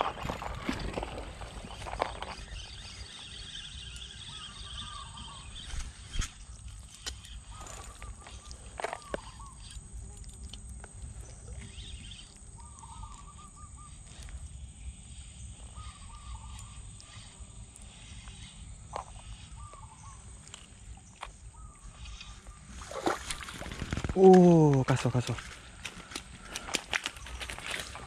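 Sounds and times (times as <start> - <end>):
bird warbling: 11.5 - 14.2.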